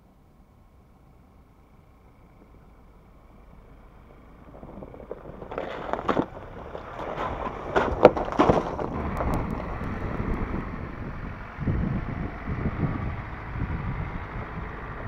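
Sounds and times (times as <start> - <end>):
steady rumbling: 0.0 - 15.0
pickup truck driving past: 1.4 - 15.0
tyres splashing in mud: 4.5 - 11.1.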